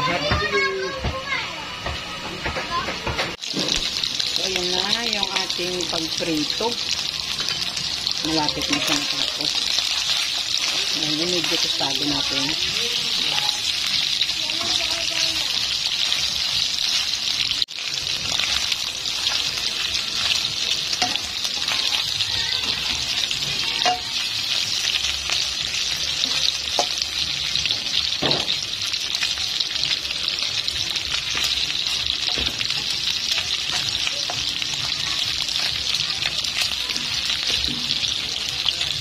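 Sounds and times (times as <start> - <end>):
meat sizzling in a pan: 2.7 - 39.0.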